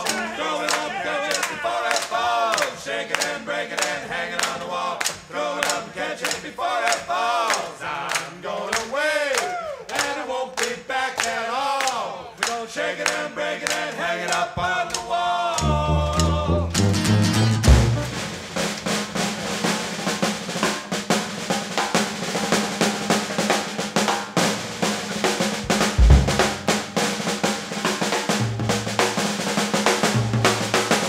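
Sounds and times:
loud drums: 0.0 - 3.4, 13.7 - 31.0
group of voices singing: 0.0 - 18.2
sharp percussive strikes: 15.6 - 18.8, 25.6 - 27.0.

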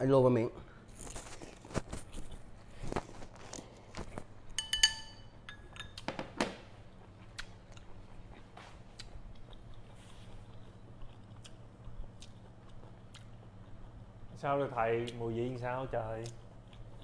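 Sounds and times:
bowl clinking: 4.5 - 6.1.

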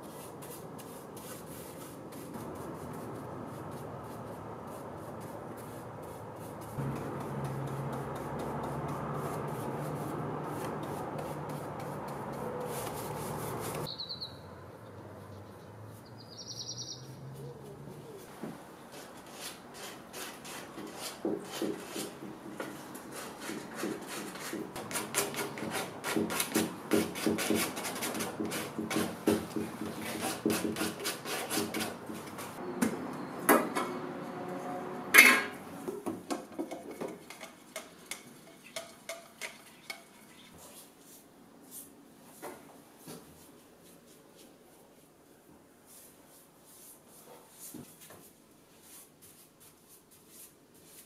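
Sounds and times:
hand-sanding wood: 0.0 - 13.9, 18.9 - 32.6.

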